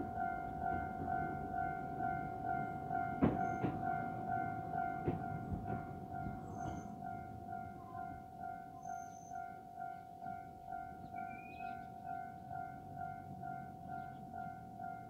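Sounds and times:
railroad crossing bell ringing: 0:00.0 - 0:15.0
sharp knocks: 0:03.2 - 0:04.0, 0:05.0 - 0:06.9.

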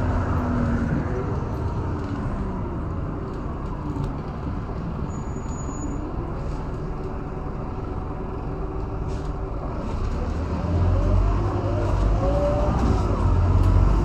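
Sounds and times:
bus diesel engine idling: 0:00.0 - 0:10.0.

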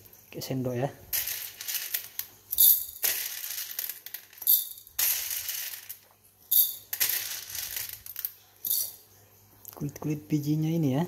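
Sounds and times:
metal spoon scooping beans: 0:01.1 - 0:09.0.

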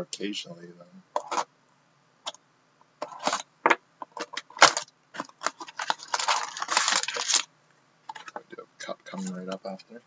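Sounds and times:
plastic wrap crinkling: 0:03.0 - 0:03.5, 0:04.1 - 0:07.5
knife slitting shrink wrap: 0:04.6 - 0:07.5.

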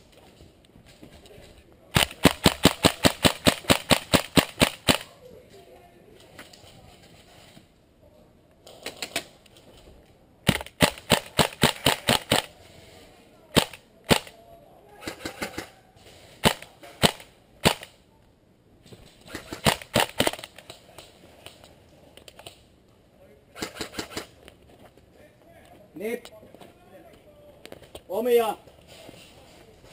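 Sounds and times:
airsoft guns firing: 0:01.9 - 0:05.1, 0:10.4 - 0:12.6, 0:13.5 - 0:14.4, 0:15.0 - 0:15.7, 0:16.4 - 0:18.0, 0:19.2 - 0:20.7, 0:23.6 - 0:24.3.

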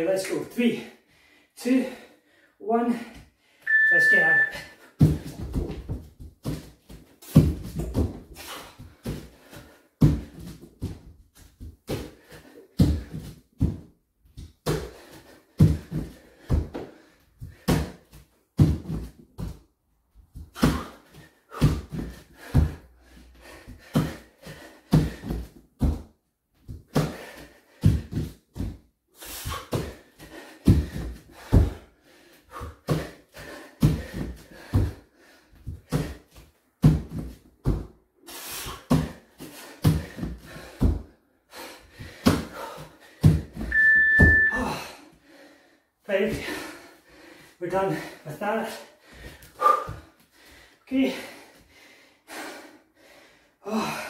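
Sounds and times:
heavy breathing: 0:00.8 - 0:03.7, 0:20.6 - 0:25.6, 0:29.1 - 0:36.4, 0:38.2 - 0:43.6, 0:44.5 - 0:54.0
timer beep: 0:03.7 - 0:04.7, 0:43.7 - 0:44.7
feet thudding on wooden floor: 0:05.0 - 0:19.6, 0:20.3 - 0:28.9, 0:38.7 - 0:41.2.

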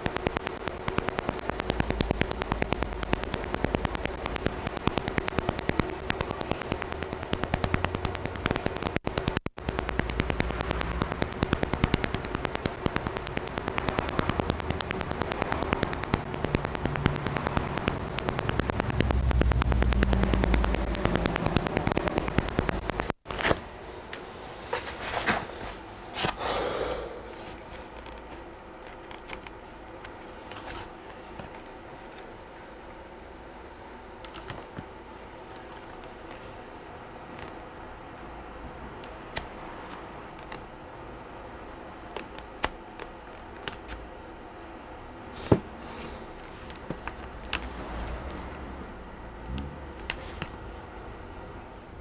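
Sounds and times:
faint ticks: 0:00.0 - 0:23.2
steady low hum: 0:00.0 - 0:52.0.

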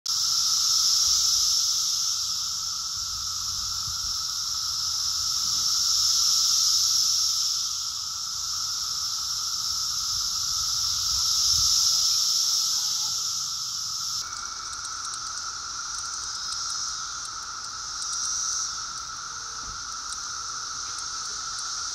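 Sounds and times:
cicadas droning: 0:00.1 - 0:21.9.

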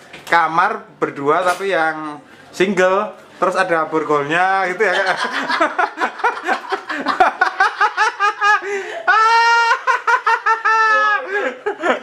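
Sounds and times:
man laughing: 0:04.9 - 0:12.0.

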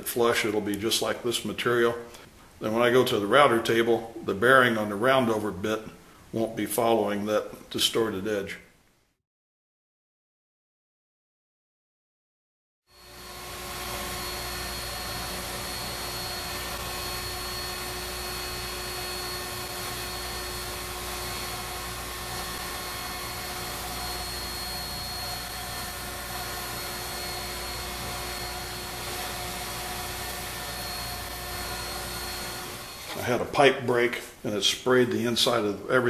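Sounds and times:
router motor whine: 0:12.9 - 0:33.6.

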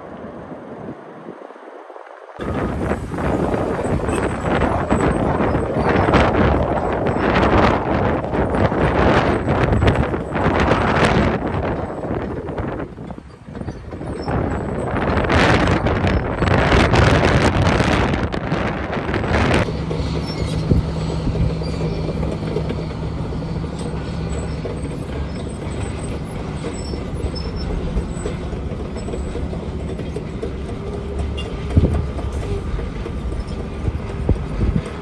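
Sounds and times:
bulldozer diesel rumble: 0:02.3 - 0:35.0
strong wind blasting microphone: 0:02.4 - 0:35.0.

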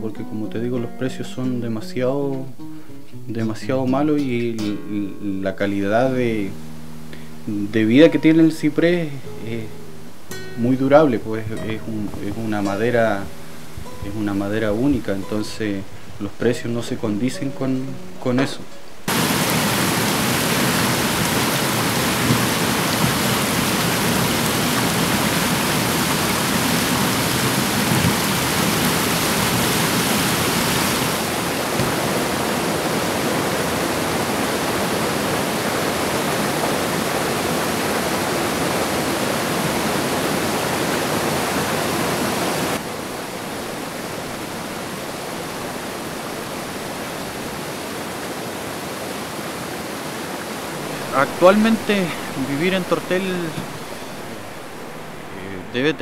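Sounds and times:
whitewater rushing over rocks: 0:19.0 - 0:56.0.

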